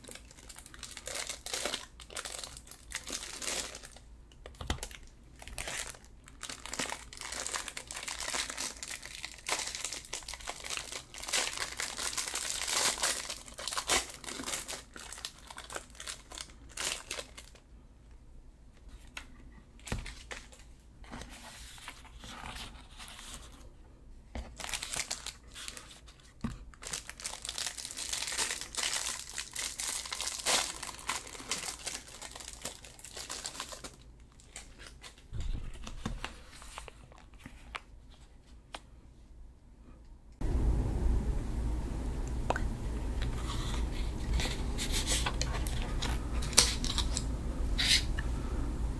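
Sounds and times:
plastic wrappers crinkling: 0.0s - 17.7s, 24.4s - 37.9s, 43.3s - 48.1s.

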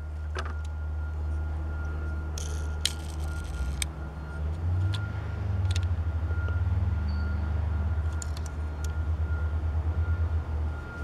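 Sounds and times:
vehicle engine rumbling: 0.0s - 11.0s
faint high-pitched beeping: 0.4s - 5.2s.

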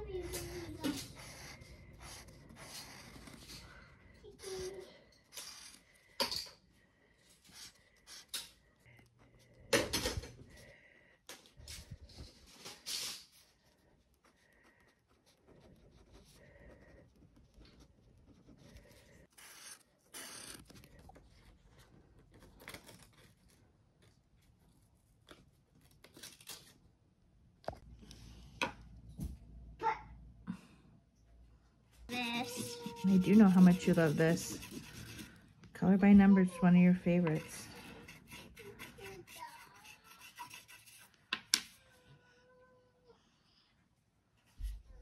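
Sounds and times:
pen strokes on paper: 0.3s - 3.7s, 32.2s - 35.4s, 37.1s - 41.2s.

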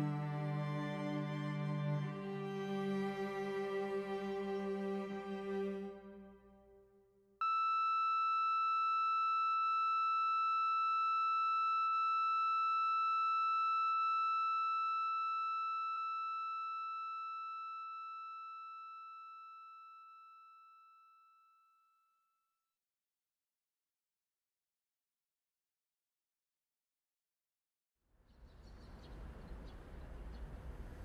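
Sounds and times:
monitor flatline alarm tone: 7.4s - 20.9s.

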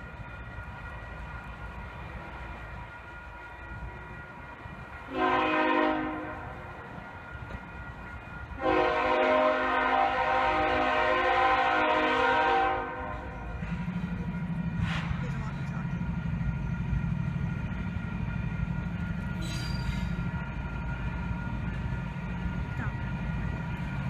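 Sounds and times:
low rumble of locomotive: 0.0s - 24.0s
locomotive air horn blasts: 5.1s - 6.6s, 8.6s - 13.3s.

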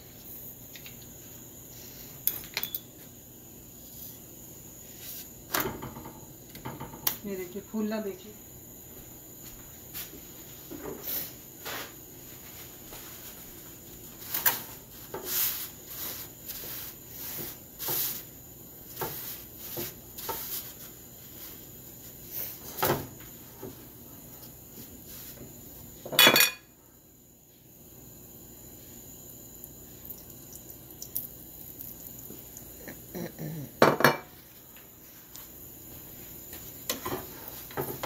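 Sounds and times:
soft taps and rubs on pan: 18.9s - 21.6s.

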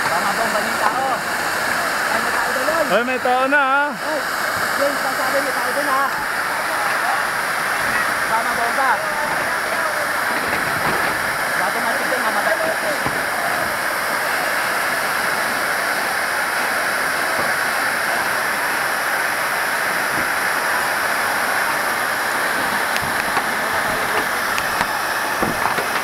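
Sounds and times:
hose spraying water: 0.0s - 26.0s.

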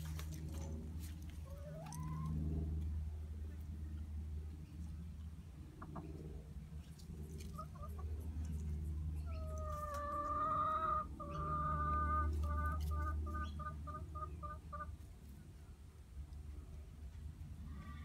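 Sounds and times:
chicken clucking and calling: 1.3s - 2.7s, 5.6s - 6.4s, 7.4s - 15.4s.

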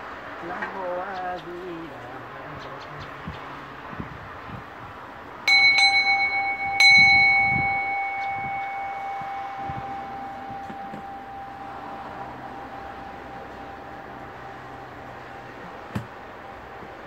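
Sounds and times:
bowl bell ringing: 5.4s - 15.9s.

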